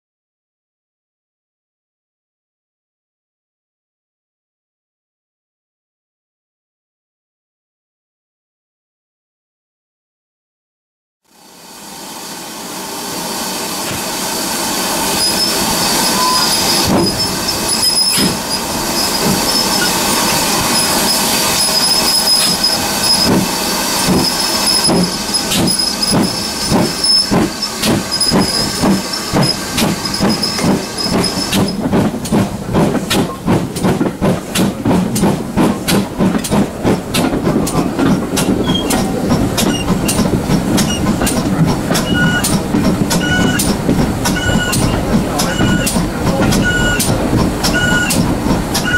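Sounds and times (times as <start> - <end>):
steam locomotive exhaust beats: 11.4 - 48.9.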